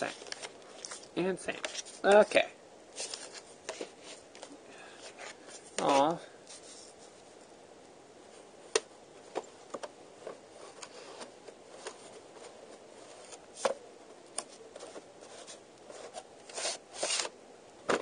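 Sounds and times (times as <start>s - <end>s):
paper rustling: 0.0s - 2.3s, 2.9s - 7.2s, 10.2s - 17.3s.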